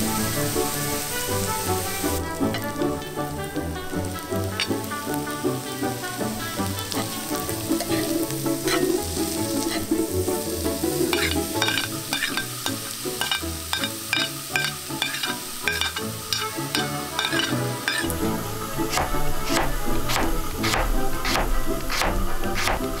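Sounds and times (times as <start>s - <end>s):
vegetables sizzling in a skillet: 0.0s - 23.0s
metal spoon stirring and scraping: 2.4s - 3.0s, 7.8s - 10.0s, 11.1s - 22.0s.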